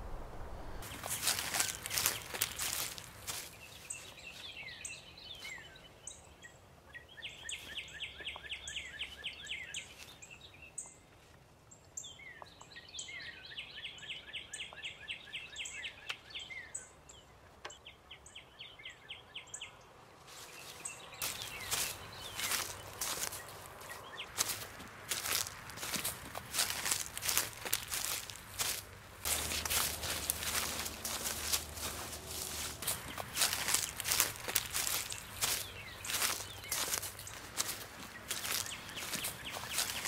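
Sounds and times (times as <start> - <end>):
rustling in leaf litter: 0.0 - 4.8, 20.2 - 40.0
songbird chirps and trill: 0.0 - 40.0.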